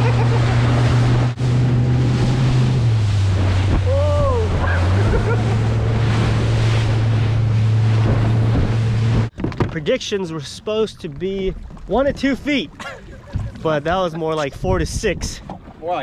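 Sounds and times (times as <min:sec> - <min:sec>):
outboard motor drone: 0:00.0 - 0:16.0
wind buffeting microphone: 0:11.3 - 0:16.0.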